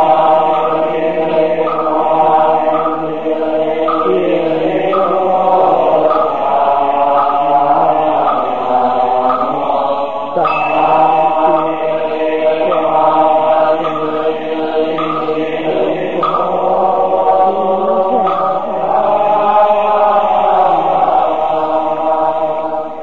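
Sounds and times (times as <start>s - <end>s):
group of voices chanting: 0.0s - 23.0s.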